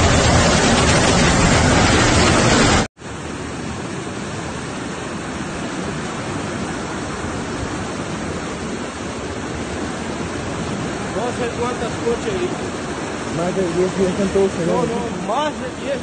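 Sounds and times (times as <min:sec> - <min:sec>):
floodwater rushing: 0:00.0 - 0:16.0.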